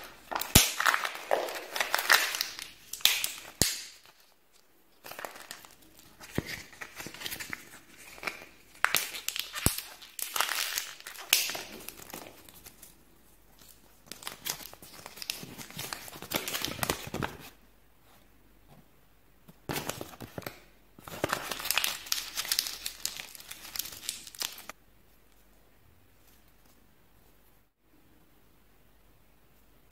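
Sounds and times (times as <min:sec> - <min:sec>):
plastic bag crinkling: 0:00.0 - 0:04.4, 0:21.1 - 0:24.8
paper leaflet crinkling: 0:00.0 - 0:17.6, 0:19.7 - 0:24.8.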